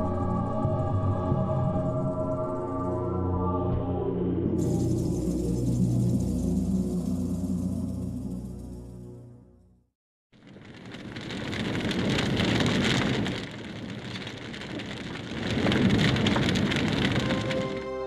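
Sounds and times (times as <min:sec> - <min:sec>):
large fire crackling and rushing: 0:04.6 - 0:08.8, 0:10.3 - 0:18.0.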